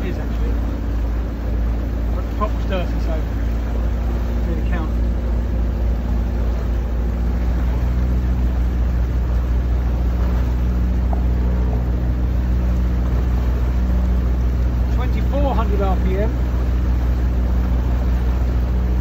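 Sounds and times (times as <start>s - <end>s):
boat engine droning: 0.0s - 19.0s
water wash: 0.0s - 19.0s.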